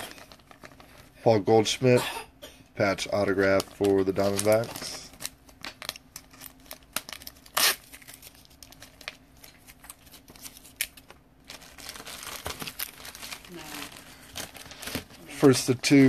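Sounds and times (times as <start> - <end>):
cards rustling: 3.4 - 16.0.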